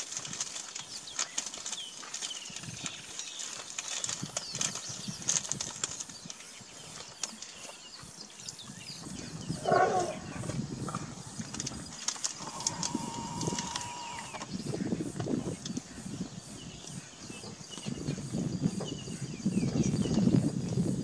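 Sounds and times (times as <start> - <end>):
birds chirping: 0.7 - 21.0
loud animal call: 9.6 - 11.1, 12.3 - 14.4.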